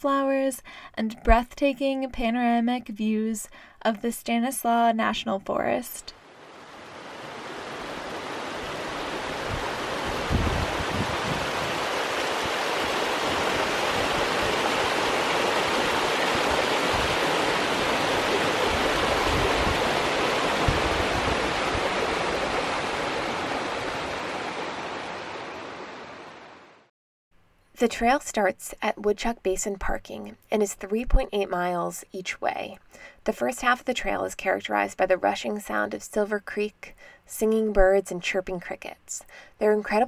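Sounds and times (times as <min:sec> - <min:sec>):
creek rushing over rocks: 0:06.3 - 0:26.6.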